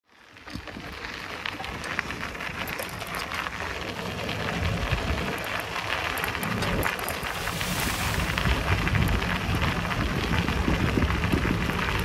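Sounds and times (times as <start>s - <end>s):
bicycle tyres crunching on track: 0.1s - 12.0s
wind rumbling on microphone: 0.2s - 12.0s.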